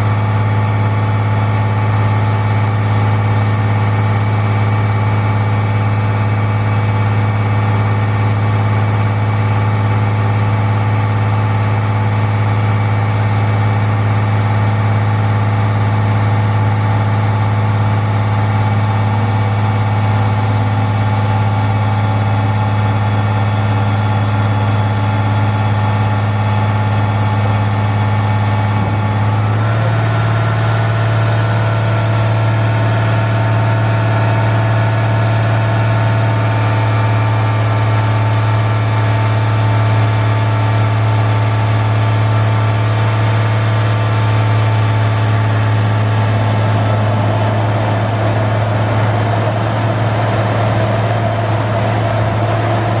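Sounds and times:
diesel truck engine running: 0.0 - 53.0
rough noise: 44.6 - 53.0.

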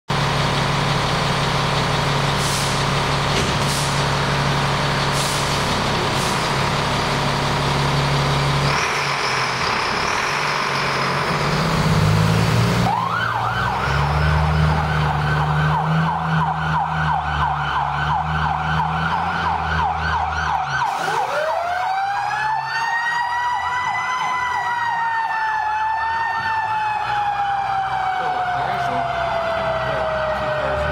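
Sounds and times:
fire engine running: 0.1 - 30.9
electronic siren yelping: 12.8 - 30.9
siren wailing: 12.8 - 30.9.

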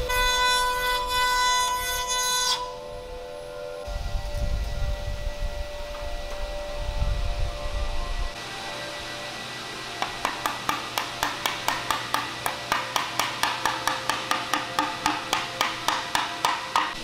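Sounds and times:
wooden mallet tapping: 10.0 - 17.0.

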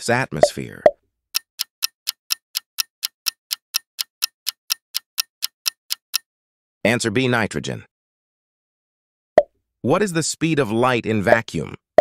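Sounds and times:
clock ticking: 0.4 - 6.3.

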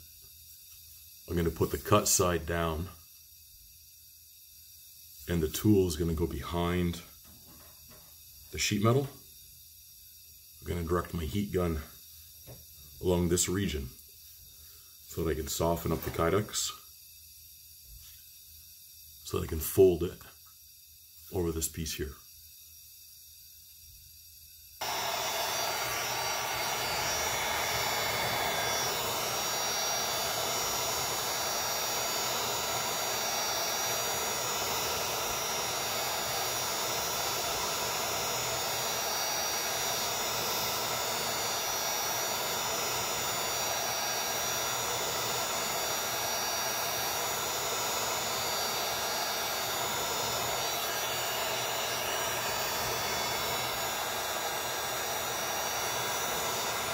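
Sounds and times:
heat gun fan blowing: 1.3 - 2.9, 24.4 - 56.9.

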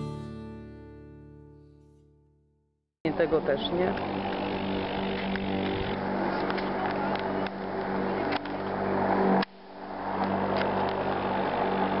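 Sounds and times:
outdoor background noise: 3.1 - 12.0
motor humming: 3.3 - 12.0.

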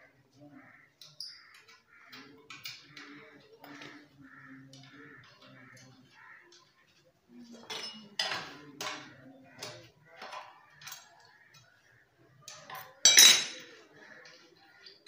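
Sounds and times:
metal tool clinking on metal: 13.0 - 13.6.

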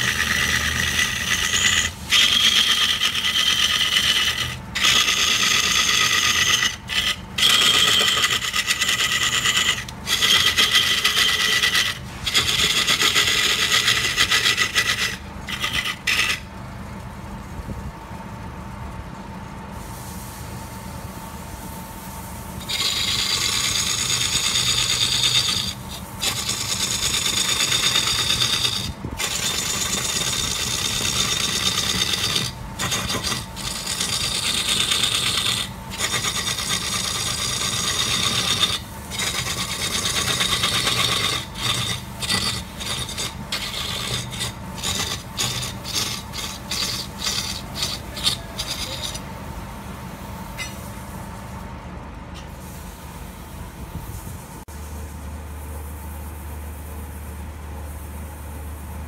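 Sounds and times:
wood lathe humming: 0.0 - 16.4, 22.6 - 49.3
turning tool scraping wood: 0.0 - 16.5, 22.6 - 49.3.

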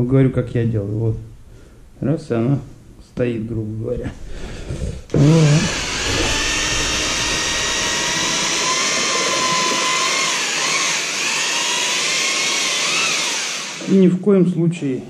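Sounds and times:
electric paddle mixer whining: 5.1 - 14.0.

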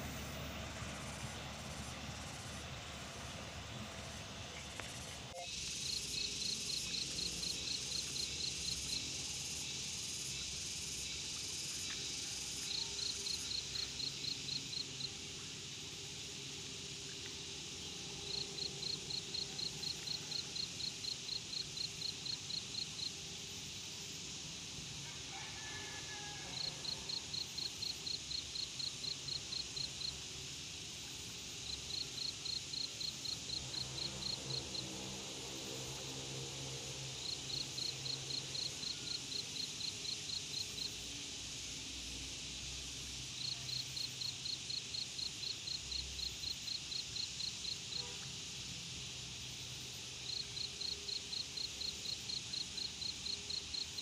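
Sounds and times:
steady high hiss: 0.0 - 54.0
insect calling in high pulses: 5.3 - 11.1.

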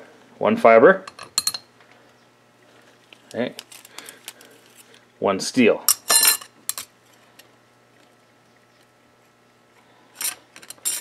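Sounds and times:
metal plates clinking: 5.9 - 6.9, 10.2 - 11.0.

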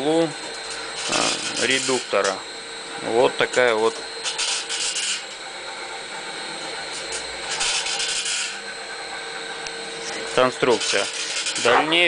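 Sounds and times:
machine running hum: 0.0 - 12.0
rasping scraping squeaks: 0.7 - 2.3, 4.2 - 8.7, 10.0 - 12.0.

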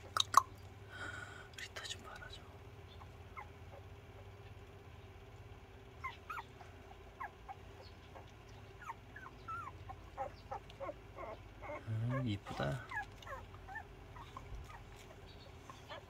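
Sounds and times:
puppies squeaking and whimpering: 2.8 - 4.4, 5.9 - 16.0.

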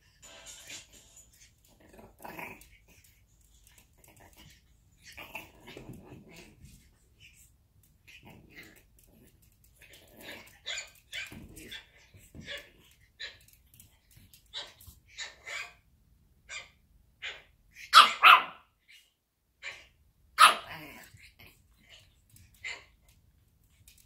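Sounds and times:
puppy yapping: 16.5 - 18.6.

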